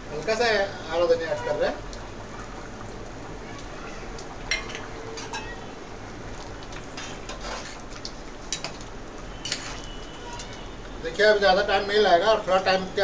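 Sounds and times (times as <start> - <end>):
spoon clinking against metal pot: 4.5 - 5.6
spoon stirring curry in a pot: 6.6 - 10.6.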